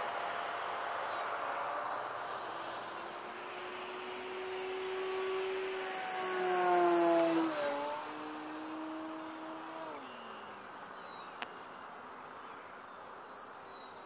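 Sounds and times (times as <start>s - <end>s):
electric model plane motor whine: 2.6s - 11.0s.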